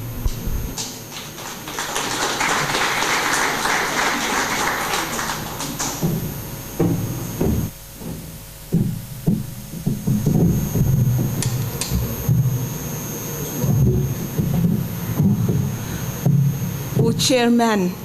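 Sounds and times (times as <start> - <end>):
audience applauding: 0.7 - 6.3
dull thumps: 6.0 - 12.5.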